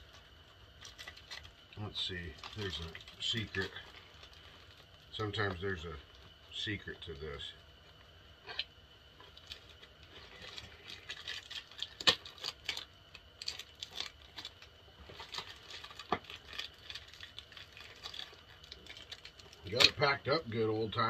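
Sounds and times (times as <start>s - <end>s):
plastic wrap crinkling: 0.0s - 5.5s, 9.2s - 20.0s.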